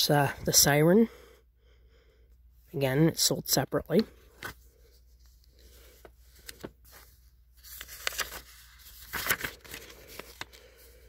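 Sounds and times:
paper pages turning: 4.0 - 11.0.

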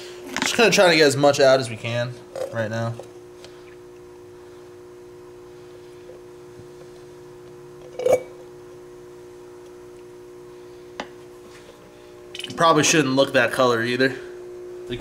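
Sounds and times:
low hum: 14.4 - 15.0.

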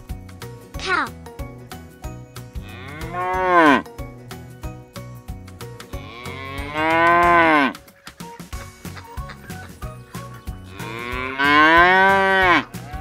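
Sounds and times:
background music with steady beat: 0.0 - 13.0
cow mooing: 2.6 - 3.9, 6.0 - 7.8, 10.7 - 12.8.

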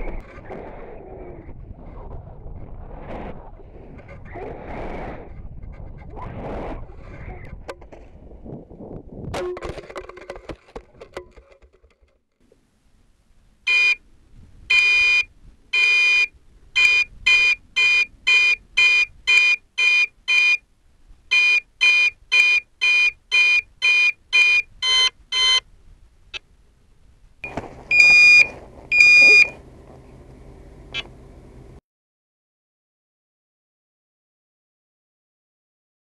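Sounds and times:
steady background noise: 9.4 - 31.8
high-pitched altimeter beeps: 21.3 - 25.6, 27.4 - 29.6.

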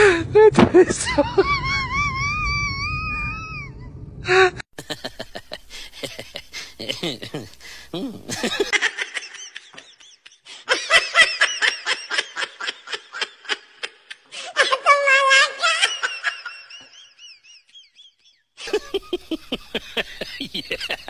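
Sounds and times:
high-pitched laughter: 4.8 - 21.0.

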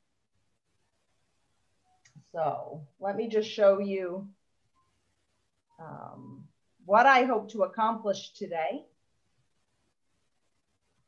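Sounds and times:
faint background hiss: 0.0 - 11.0.

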